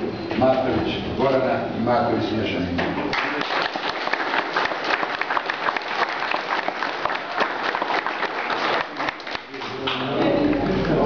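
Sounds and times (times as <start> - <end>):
people applauding: 3.1 - 11.0.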